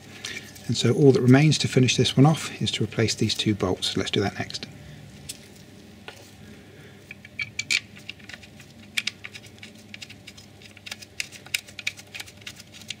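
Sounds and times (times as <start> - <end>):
small bolts clicking and tapping: 7.1 - 13.0.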